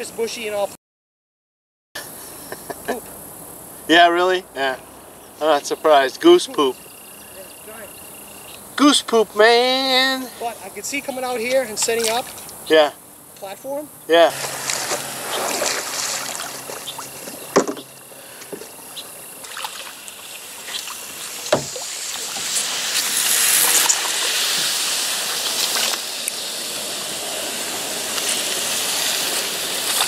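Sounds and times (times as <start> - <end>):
water sloshing around a kayak: 14.3 - 26.4
sharp knocks: 17.2 - 17.9, 21.5 - 21.8.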